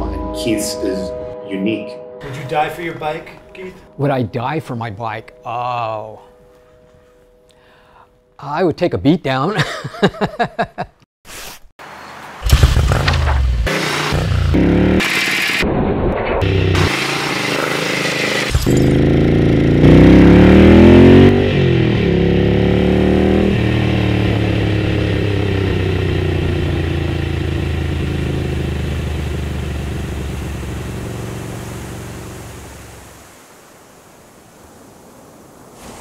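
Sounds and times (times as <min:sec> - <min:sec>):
motorcycle engine accelerating: 0:12.4 - 0:33.0.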